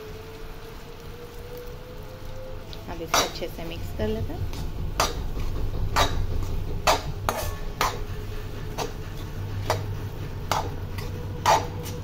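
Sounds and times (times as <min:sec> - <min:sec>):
spatula scraping metal pan: 0:03.0 - 0:03.7, 0:05.0 - 0:12.0.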